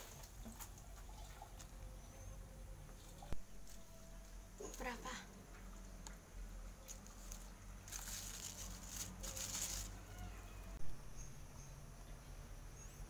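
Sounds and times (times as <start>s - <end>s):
dry shallot skins rustling: 6.8s - 10.4s.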